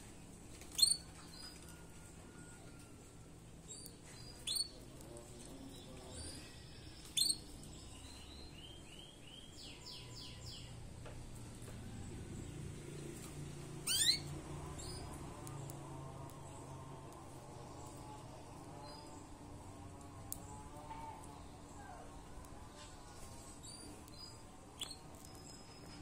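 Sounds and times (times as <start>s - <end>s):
songbird chirping: 0.0s - 26.0s.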